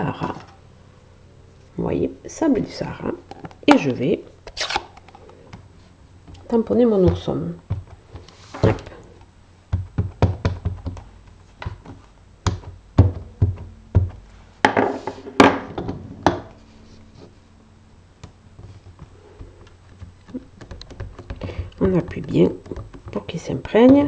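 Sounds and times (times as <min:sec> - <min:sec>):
rubber stamp taps and clacks: 0:09.7 - 0:14.2, 0:19.0 - 0:24.0
louder knocks: 0:12.4 - 0:16.5.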